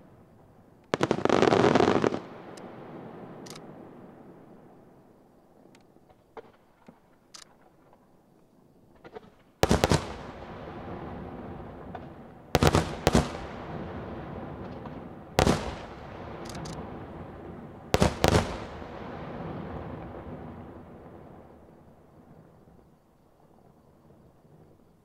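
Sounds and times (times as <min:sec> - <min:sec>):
small fireworks pops: 0:00.8 - 0:02.7, 0:03.4 - 0:03.7, 0:05.6 - 0:10.5, 0:11.7 - 0:13.8, 0:14.5 - 0:16.9, 0:18.0 - 0:20.4
fireworks bursting with loud bangs: 0:00.8 - 0:04.8, 0:08.9 - 0:22.5
rolling echo: 0:09.1 - 0:22.4.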